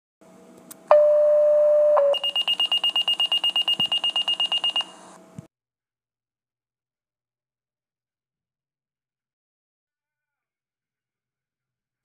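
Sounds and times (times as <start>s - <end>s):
steady electronic alarm tone: 0.9s - 4.9s
rapid high-pitched beeping: 2.1s - 4.9s.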